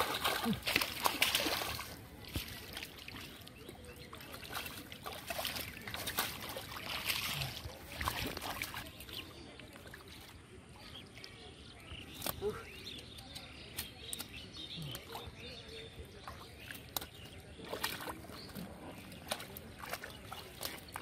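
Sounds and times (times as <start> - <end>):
hands splashing in muddy water: 0.0 - 11.4, 12.0 - 21.0.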